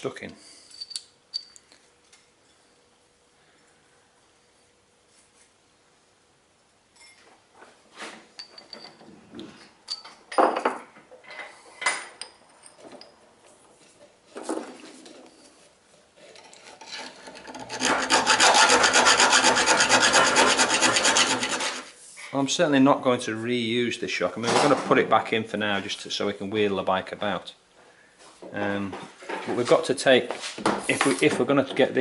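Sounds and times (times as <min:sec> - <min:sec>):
metal clinks and knocks: 0:00.6 - 0:01.7, 0:08.4 - 0:09.1, 0:09.8 - 0:13.2
hand file rasping on metal: 0:16.9 - 0:22.0.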